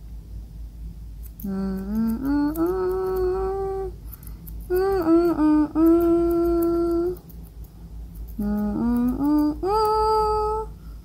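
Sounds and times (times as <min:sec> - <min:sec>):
grooming scissors snipping: 0:01.2 - 0:10.0
person humming a slow tune: 0:01.4 - 0:04.0, 0:04.6 - 0:07.3, 0:08.3 - 0:10.8.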